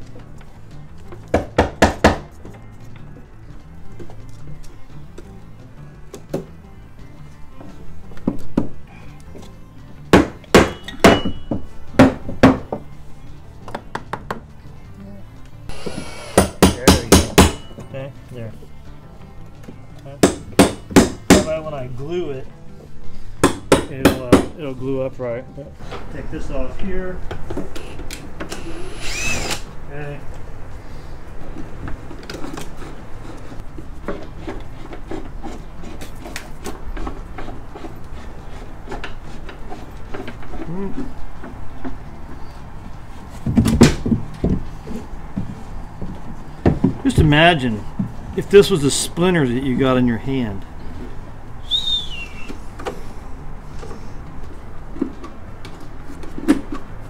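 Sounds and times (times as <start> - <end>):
hammer knocking on wood: 1.2 - 2.4, 10.1 - 12.9, 13.7 - 14.5, 16.3 - 17.8, 20.2 - 21.5, 23.4 - 24.6, 45.3 - 47.0
cordless drill whirring: 27.8 - 29.7
wood being handled by hand: 31.4 - 48.8.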